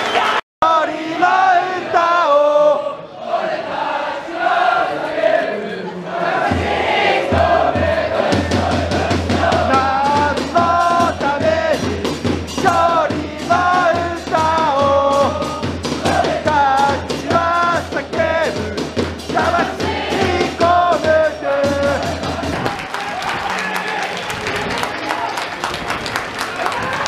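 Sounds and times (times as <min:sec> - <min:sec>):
crowd chanting: 0:00.0 - 0:25.3
drums beaten fast: 0:06.2 - 0:23.7.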